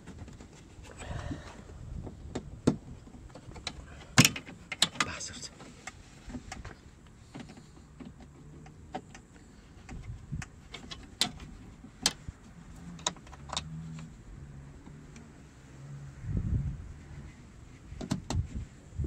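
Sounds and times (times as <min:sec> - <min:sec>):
metallic clicks of car door latch: 0:02.0 - 0:06.7.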